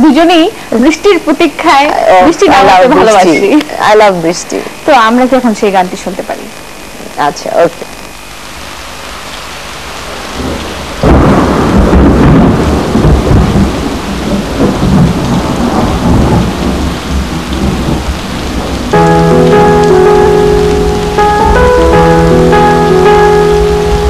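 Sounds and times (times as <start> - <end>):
rain hiss: 0.0 - 24.0
thunderclap and rumble: 10.4 - 20.6.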